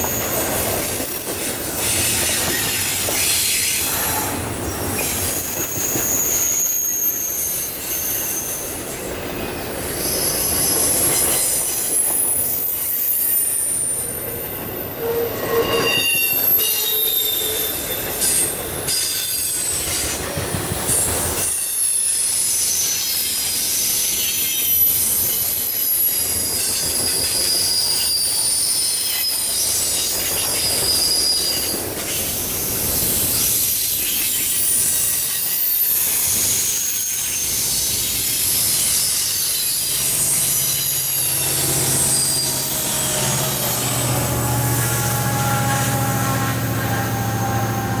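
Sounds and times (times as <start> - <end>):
rail clatter: 0.0 - 6.9
wheel flange squeal: 0.0 - 20.2, 20.9 - 48.0.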